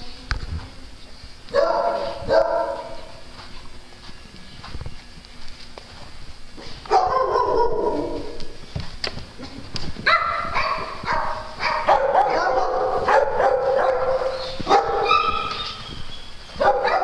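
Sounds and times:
dogs barking and yipping: 0:01.5 - 0:03.5, 0:06.8 - 0:08.6, 0:10.0 - 0:17.0.

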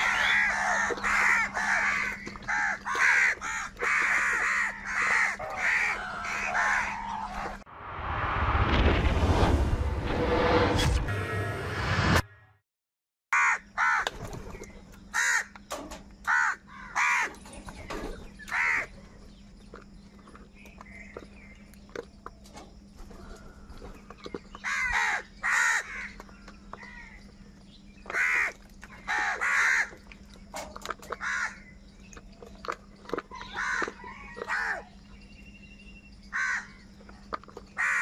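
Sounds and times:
crows cawing: 0:00.0 - 0:07.6, 0:13.3 - 0:14.1, 0:15.1 - 0:15.6, 0:16.3 - 0:17.4, 0:18.4 - 0:18.9, 0:24.6 - 0:26.2, 0:28.1 - 0:30.0, 0:31.2 - 0:31.7, 0:33.4 - 0:34.9, 0:36.3 - 0:36.8, 0:37.8 - 0:38.0.

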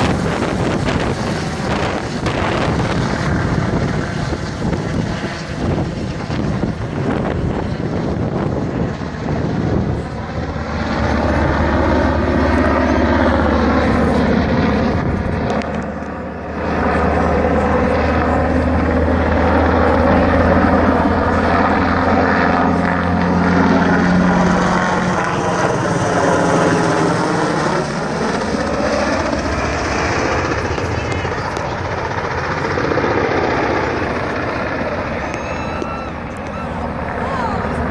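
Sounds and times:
helicopter rotor beat and engine: 0:00.0 - 0:37.9.

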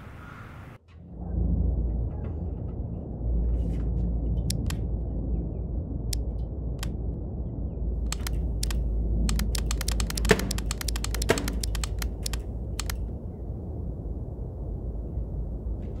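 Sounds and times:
steady low hum: 0:00.0 - 0:16.0
fingers clicking on pc case: 0:08.1 - 0:13.0.

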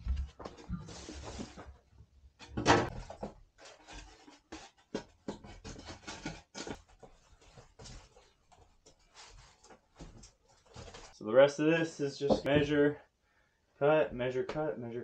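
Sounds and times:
foam board knocks and scrapes: 0:02.5 - 0:08.2.

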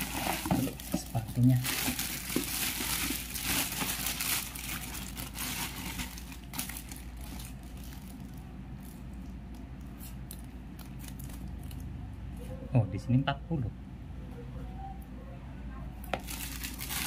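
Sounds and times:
plastic bag crinkling: 0:00.0 - 0:09.0, 0:16.1 - 0:17.0.

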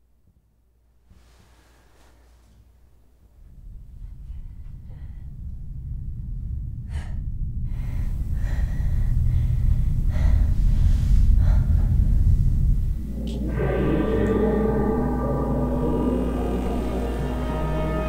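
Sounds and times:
deep rumbling drone: 0:03.2 - 0:18.0
gong-like ringing chord: 0:13.2 - 0:18.0.

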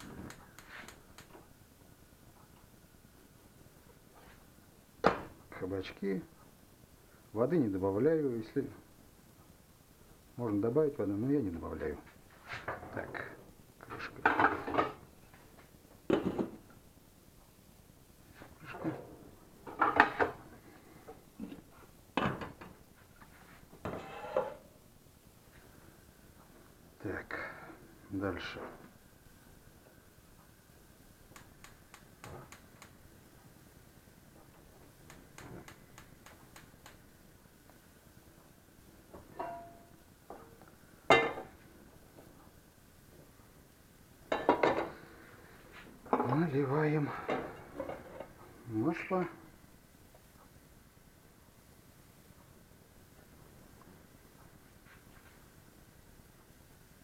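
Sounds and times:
kitchenware clinking and knocking: 0:14.1 - 0:15.0, 0:19.6 - 0:20.4, 0:39.2 - 0:39.9, 0:44.3 - 0:45.0
metal pans clattering: 0:39.3 - 0:39.9.

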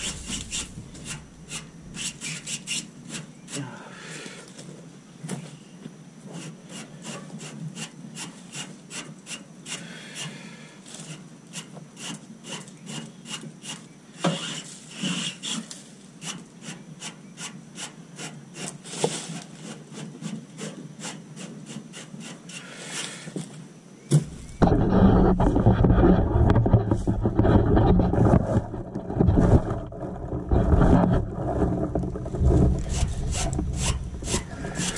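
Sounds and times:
brush scraping metal fins: 0:00.0 - 0:03.6, 0:24.2 - 0:34.9.

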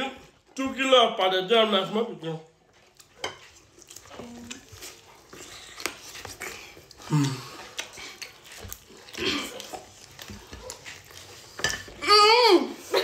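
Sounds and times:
wet chewing: 0:02.5 - 0:12.1
person grunting: 0:07.0 - 0:07.6.

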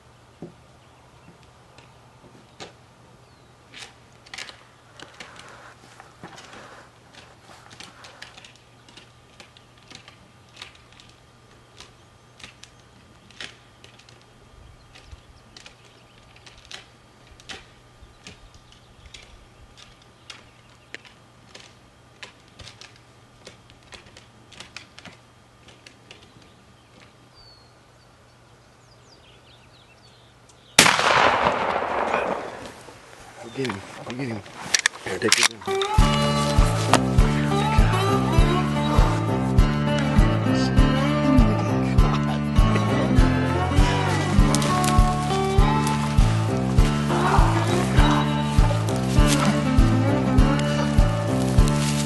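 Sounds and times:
open-air ambience: 0:00.0 - 0:52.0
faint scattered clicks: 0:03.7 - 0:27.4, 0:30.4 - 0:40.3, 0:41.4 - 0:52.0
shotgun blast: 0:30.8 - 0:33.1.

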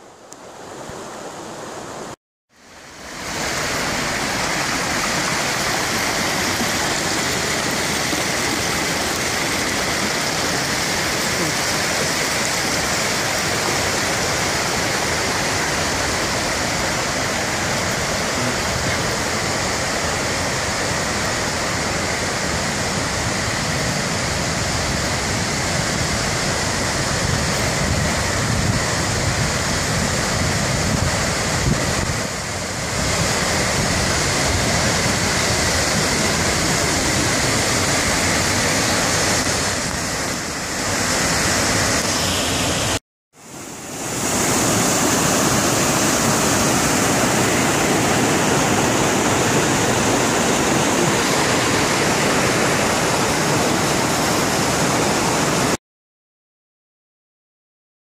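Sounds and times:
waterfall roaring: 0:00.0 - 0:55.8.

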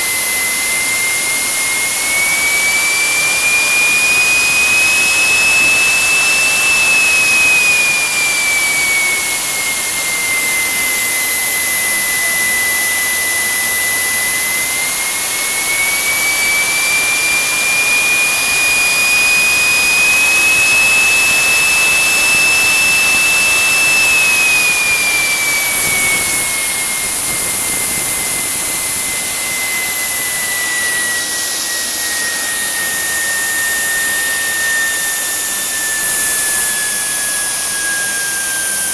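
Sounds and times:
jet turbine engine whining: 0:00.0 - 0:38.9.

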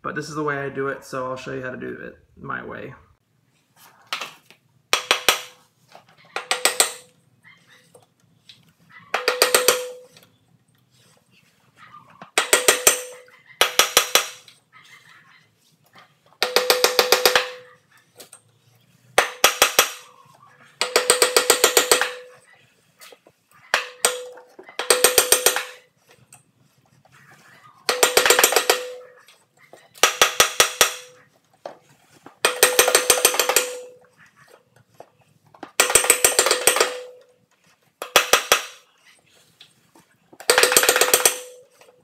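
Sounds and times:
hammer striking metal: 0:06.4 - 0:07.1, 0:09.1 - 0:10.2, 0:12.3 - 0:14.5, 0:16.4 - 0:17.7, 0:19.2 - 0:20.1, 0:20.8 - 0:22.5, 0:23.7 - 0:25.8, 0:27.9 - 0:29.2, 0:30.0 - 0:31.2, 0:32.4 - 0:34.1, 0:35.8 - 0:37.3, 0:40.4 - 0:41.9.

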